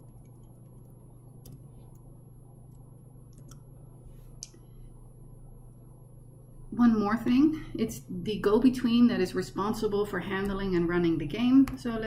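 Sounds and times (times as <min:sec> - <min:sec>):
keyboard and mouse clicks: 0:00.0 - 0:02.1, 0:02.7 - 0:03.7
steady low hum: 0:00.0 - 0:12.0.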